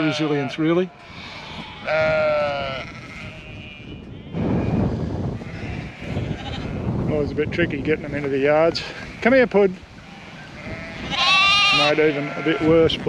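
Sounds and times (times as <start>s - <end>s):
sheep bleating: 0.0s - 6.9s, 10.0s - 13.0s.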